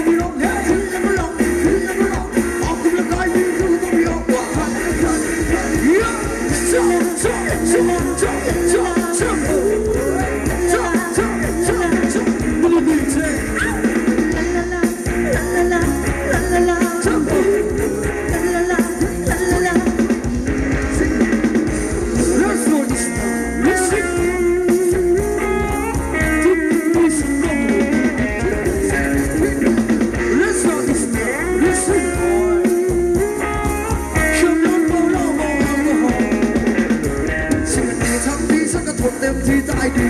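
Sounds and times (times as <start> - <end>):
drum kit beat: 0.0 - 40.0
guitar: 0.0 - 40.0
live dance band music: 0.0 - 40.0
person singing: 0.0 - 40.0.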